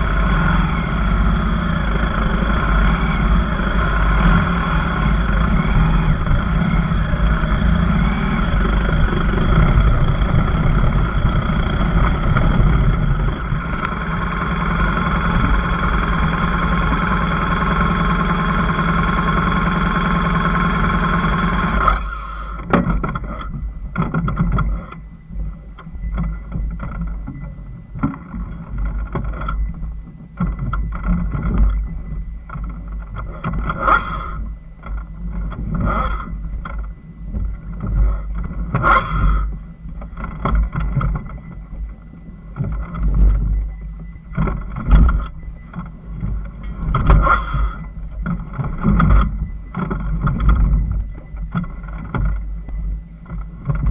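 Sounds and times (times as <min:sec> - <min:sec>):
motorcycle engine revving: 0:00.0 - 0:23.5
wind on microphone: 0:00.0 - 0:53.9.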